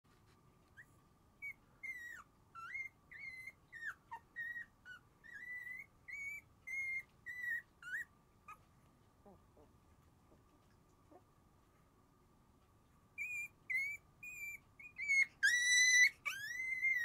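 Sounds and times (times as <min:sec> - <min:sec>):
faint steady hum: 0:00.1 - 0:17.0
puppies whimpering: 0:01.4 - 0:08.6, 0:13.2 - 0:17.0.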